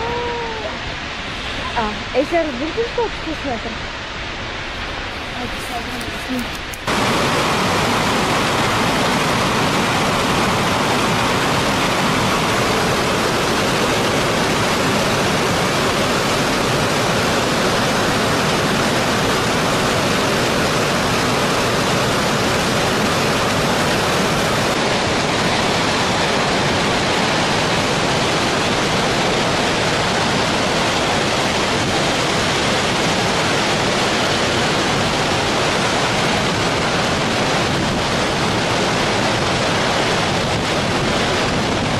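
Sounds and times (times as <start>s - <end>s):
water rushing from spillway: 0.0s - 41.9s.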